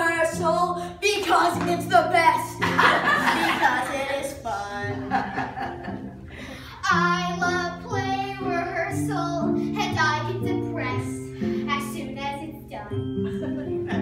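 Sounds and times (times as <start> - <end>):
instrumental backing track: 4.9 - 14.0.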